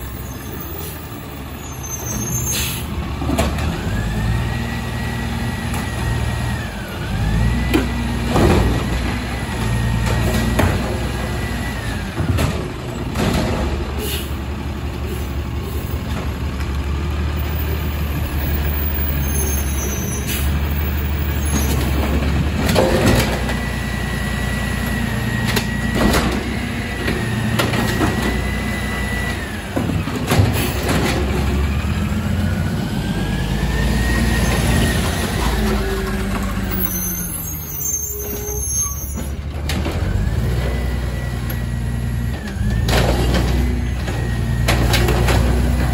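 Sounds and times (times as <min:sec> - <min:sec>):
diesel engine droning and revving: 0:00.0 - 0:45.9
carts knocking and banging: 0:12.0 - 0:14.0, 0:21.2 - 0:23.8.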